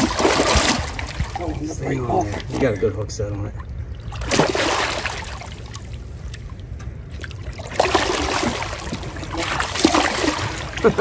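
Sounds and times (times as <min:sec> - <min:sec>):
fish splashing in water: 0:00.0 - 0:01.5, 0:04.0 - 0:11.0.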